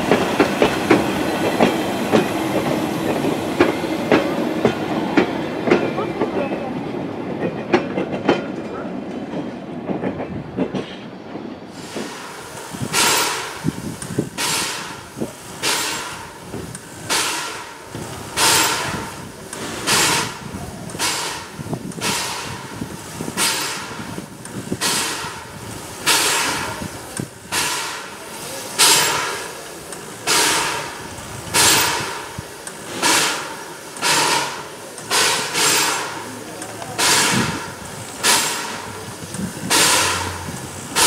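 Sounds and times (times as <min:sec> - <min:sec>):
steam locomotive puffs hissing: 0:11.6 - 0:41.0.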